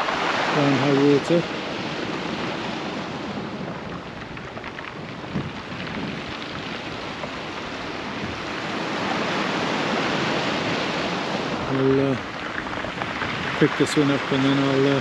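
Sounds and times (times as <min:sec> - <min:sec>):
surf washing on shingle: 0:00.0 - 0:03.4.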